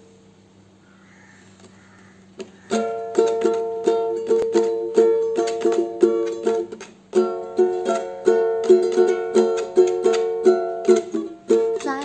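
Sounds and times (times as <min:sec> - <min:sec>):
ukulele strumming chords: 0:02.4 - 0:12.0.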